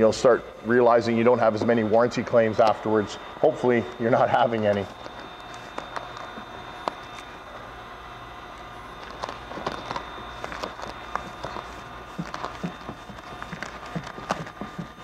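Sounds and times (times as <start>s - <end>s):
steady low hum: 0.0s - 15.0s
vinyl film crinkling and clicking: 3.9s - 7.4s, 8.6s - 15.0s.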